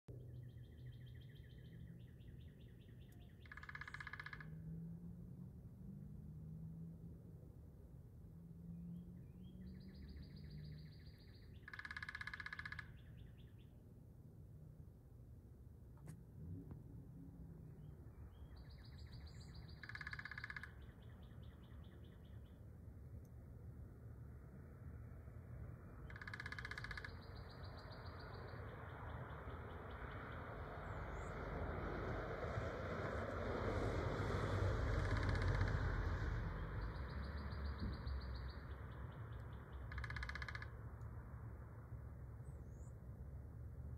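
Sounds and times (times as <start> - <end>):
traffic noise: 0.1 - 43.9
woodpecker calls: 0.4 - 4.7, 9.4 - 13.7, 18.3 - 22.6, 26.0 - 31.3, 34.8 - 41.2
woodpecker rattle: 3.2 - 4.6, 11.0 - 13.2, 18.6 - 21.5, 26.0 - 28.4, 34.9 - 35.9, 39.3 - 41.0.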